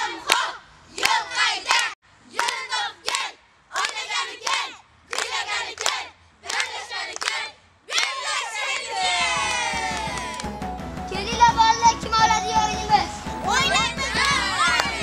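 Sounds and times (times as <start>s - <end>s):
children chanting: 0.0s - 10.4s, 13.5s - 15.0s
children clapping hands: 5.1s - 7.4s, 9.7s - 10.6s, 13.7s - 15.0s.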